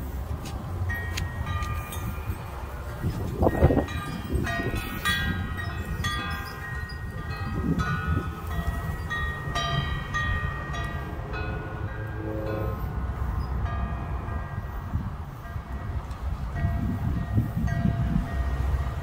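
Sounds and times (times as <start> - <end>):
steady low rumble: 0.0 - 18.3
wind chimes ringing: 0.8 - 18.8
rush of noise: 7.6 - 16.0.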